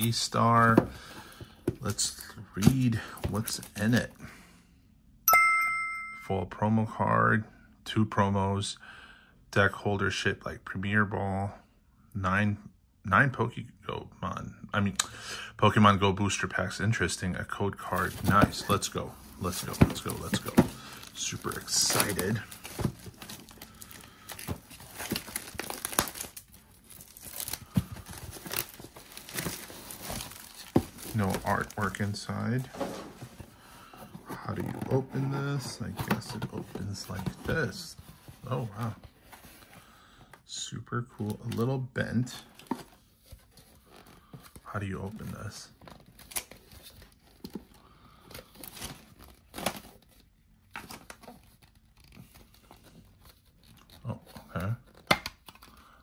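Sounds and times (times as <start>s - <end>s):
cardboard packaging rustling: 0.0s - 4.1s, 17.8s - 39.8s, 42.5s - 55.8s
plastic wrapping crinkling and tearing: 20.0s - 32.2s.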